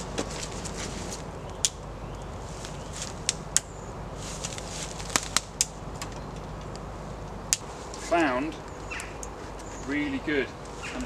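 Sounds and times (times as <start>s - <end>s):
footsteps in leaf litter: 0.0s - 1.3s, 2.3s - 3.3s, 4.1s - 5.5s, 10.7s - 11.0s
twigs snapping: 0.0s - 9.8s.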